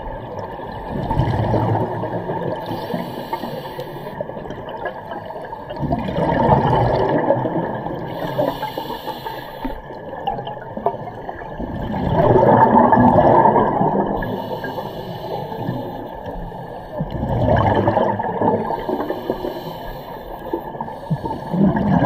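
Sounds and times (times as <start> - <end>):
bubbling exhaled air underwater: 0.0 - 8.9, 9.9 - 19.7, 20.5 - 22.0
inhale hiss through regulator: 2.6 - 4.3, 8.1 - 10.0, 14.2 - 17.0, 18.6 - 21.7.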